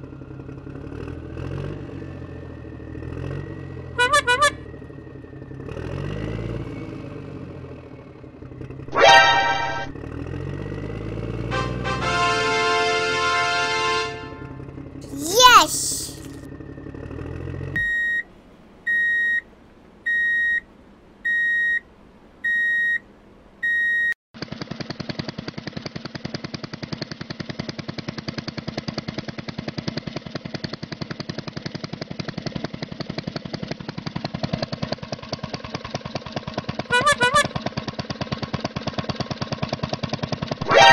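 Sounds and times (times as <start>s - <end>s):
reversing alarm beeps: 17.8s - 18.2s, 18.9s - 19.4s, 20.1s - 20.6s, 21.3s - 21.8s, 22.5s - 23.0s, 23.6s - 24.2s
fast chugging engine sound effect: 24.4s - 40.9s.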